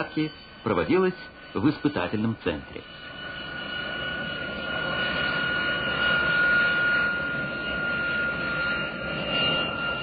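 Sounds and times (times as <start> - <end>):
jet engines running with high whine: 0.0 - 10.0.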